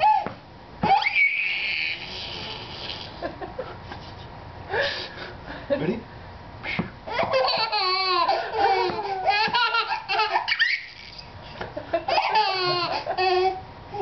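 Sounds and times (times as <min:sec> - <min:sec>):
baby laughing: 0:00.0 - 0:00.2, 0:00.8 - 0:03.4, 0:07.1 - 0:11.3, 0:12.0 - 0:14.0.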